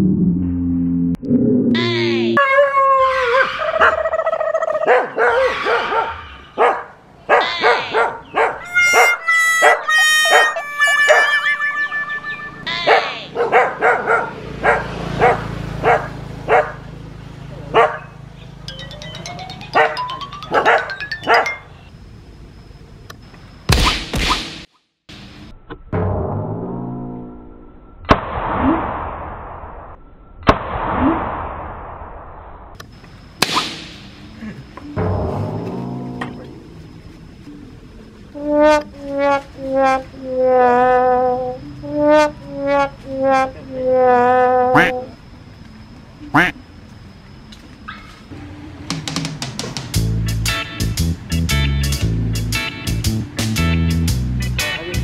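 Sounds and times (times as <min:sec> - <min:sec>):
dog barking: 0:04.7 - 0:11.4, 0:12.8 - 0:16.9, 0:17.7 - 0:18.2, 0:19.8 - 0:21.6
high held tones: 0:08.6 - 0:13.4, 0:18.4 - 0:22.2
short rising squeak: 0:10.2 - 0:13.3.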